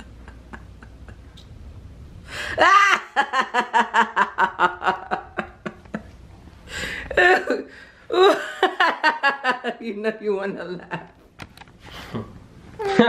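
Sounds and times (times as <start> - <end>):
person laughing: 0.0 - 1.4, 2.4 - 6.2, 12.0 - 13.0.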